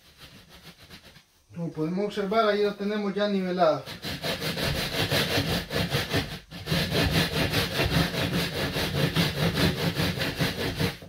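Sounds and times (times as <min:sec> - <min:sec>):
tool scraping mortar: 0:00.0 - 0:01.3, 0:03.5 - 0:11.0.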